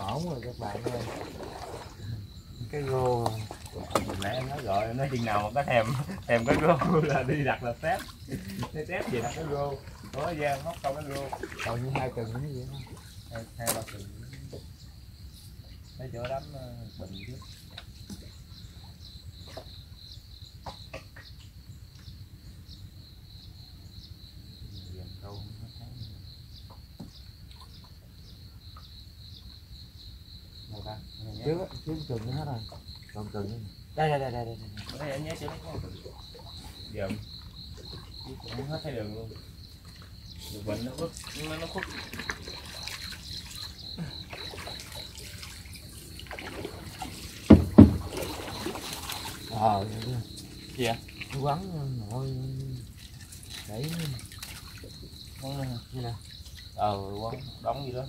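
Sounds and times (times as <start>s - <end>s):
insects trilling: 0.0s - 58.0s
water trickling and dripping: 0.0s - 58.0s
heavy thumps: 47.5s - 48.2s.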